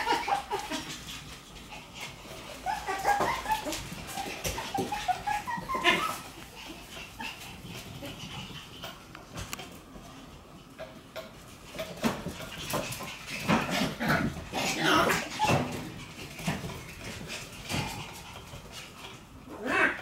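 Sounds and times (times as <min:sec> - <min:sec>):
puppies whining and yipping: 0:02.1 - 0:08.5, 0:13.5 - 0:17.2.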